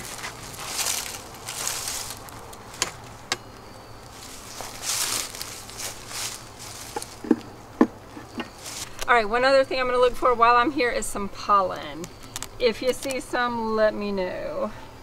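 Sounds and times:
honeybees buzzing: 0.0 - 15.0.

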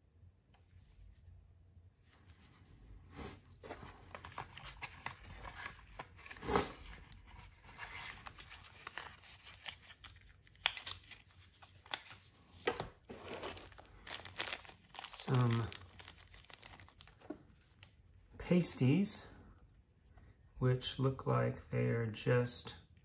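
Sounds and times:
cellophane crinkling and tearing: 4.0 - 17.9.

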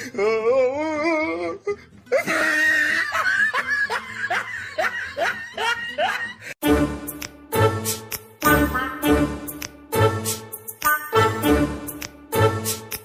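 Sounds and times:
person laughing loudly: 2.1 - 6.6.

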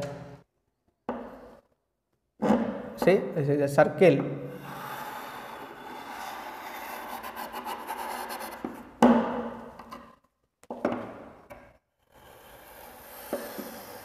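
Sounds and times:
chalk scraping on chalkboard: 4.6 - 8.8, 12.0 - 14.0.

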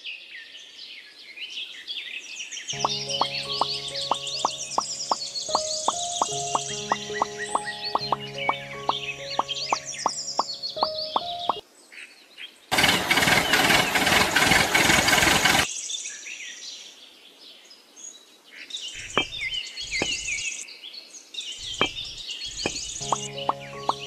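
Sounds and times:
birds chirping: 2.7 - 11.6, 18.9 - 20.6, 21.5 - 24.0
clay blocks tapping on cardboard: 19.2 - 19.4, 21.8 - 22.0, 22.6 - 23.2.

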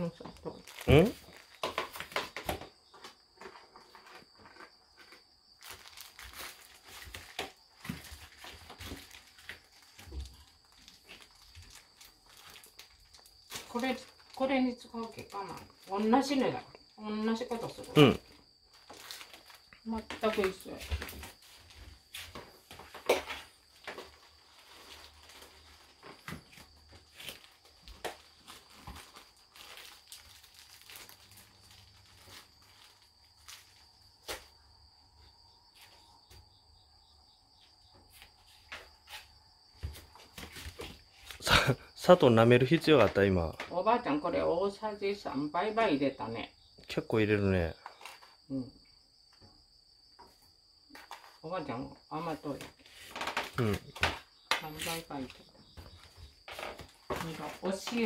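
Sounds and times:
sugar rustling: 23.4 - 34.3.

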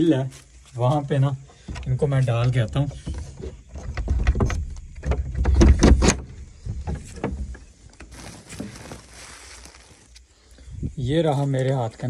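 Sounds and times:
door bolt rattling and clanking: 1.7 - 7.6
plastic sack rustling: 7.0 - 10.2.

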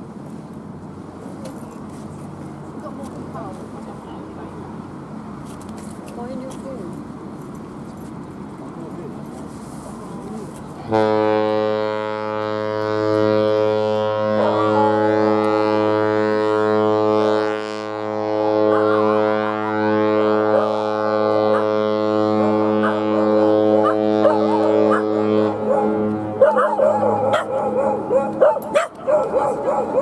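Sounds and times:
ship horn blast: 10.8 - 26.4.

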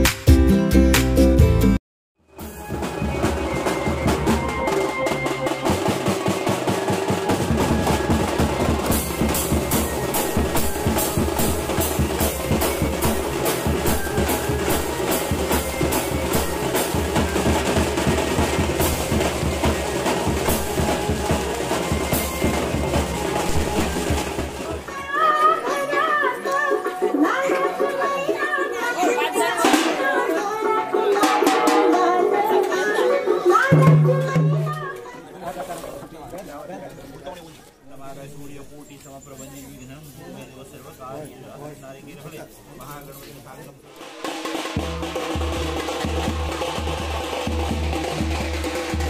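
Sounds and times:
recorded music: 0.0 - 1.8
side drums and bass drum beating: 0.0 - 25.0, 31.1 - 32.5, 33.6 - 35.0, 43.9 - 49.0.

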